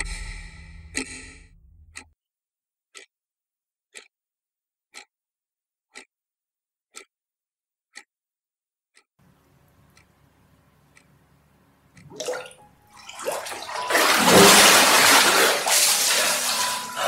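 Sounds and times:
low drone: 0.0 - 2.0
clock ticking: 0.0 - 2.1, 3.9 - 4.1, 4.9 - 5.1, 6.9 - 7.1, 8.9 - 13.0.

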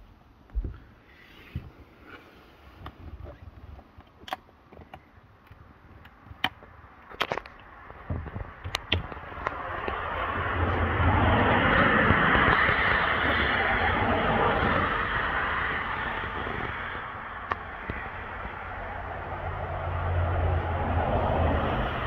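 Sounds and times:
rushing noise: 7.8 - 22.0.

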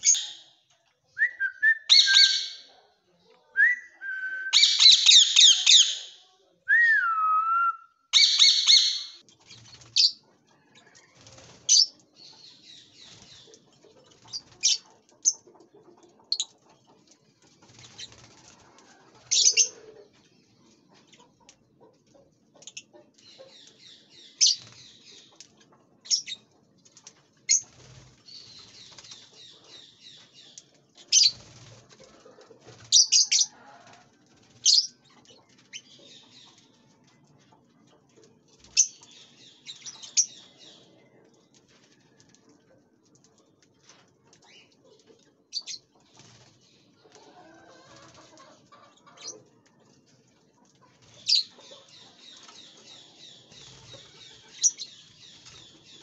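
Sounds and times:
parrots screeching: 8.2 - 9.2.

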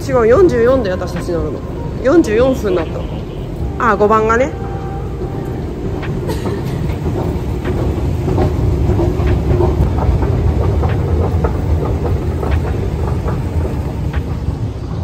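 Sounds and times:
clicks and clacks: 5.5 - 15.0.

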